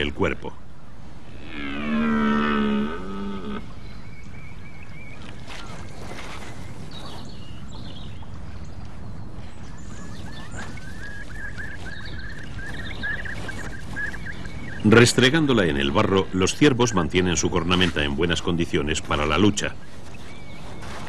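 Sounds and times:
stag roaring: 1.3 - 3.7
antlers rubbing in mud: 9.5 - 21.0.

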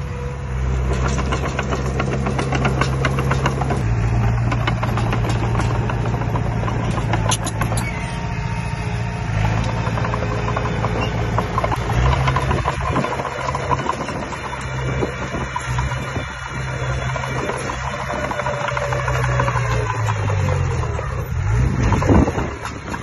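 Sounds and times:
diesel engine under load: 0.0 - 23.0
fast rattling clicks: 0.9 - 3.8, 4.4 - 7.9, 9.4 - 16.2.

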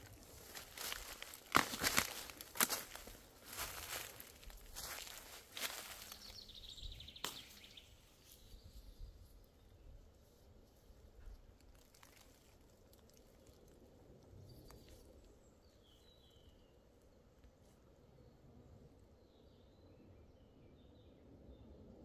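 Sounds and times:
soft footsteps: 0.0 - 6.4.

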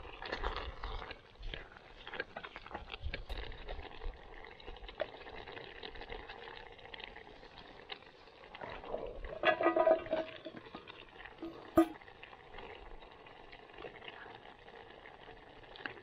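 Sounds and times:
chilli bubbling and sizzling in a pot: 0.0 - 16.0.

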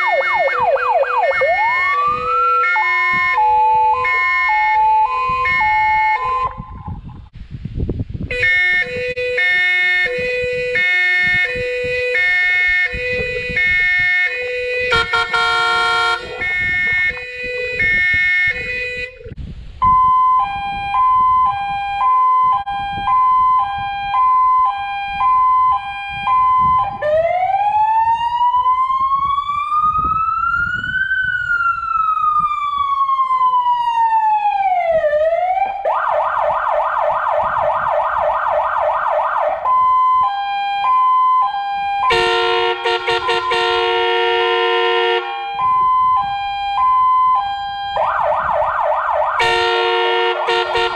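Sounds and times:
fire truck electronic siren: 0.0 - 7.3, 8.3 - 50.9
horn-like chord: 14.3 - 17.9, 49.4 - 50.9.

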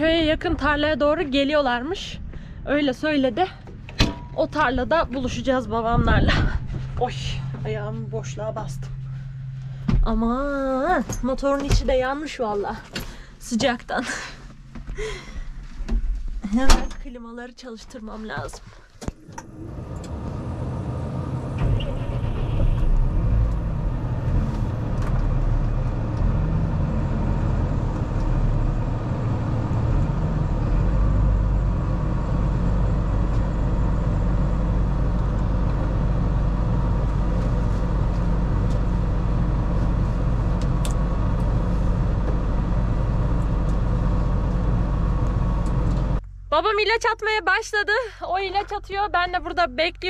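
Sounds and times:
tractor diesel engine running: 0.0 - 15.3, 17.8 - 50.0.

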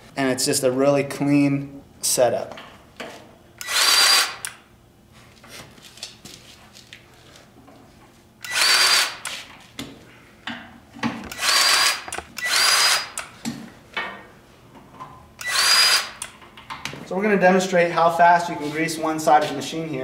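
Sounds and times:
grease gun motor whine: 3.6 - 4.5, 8.4 - 9.3, 11.3 - 13.2, 15.4 - 16.3.

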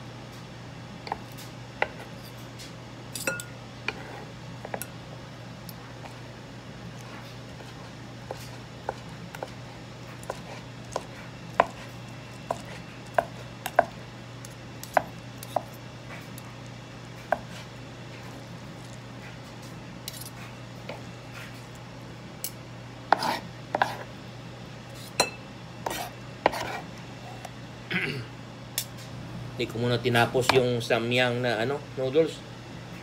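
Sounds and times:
steady low hum: 0.0 - 33.0
knife chopping on cutting board: 10.2 - 11.9, 12.5 - 13.9, 14.8 - 15.8, 23.1 - 24.0, 25.8 - 26.8.

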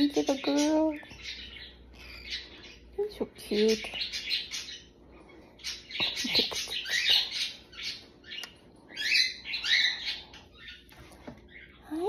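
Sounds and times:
cockatiel chirping and chattering: 5.6 - 10.9.

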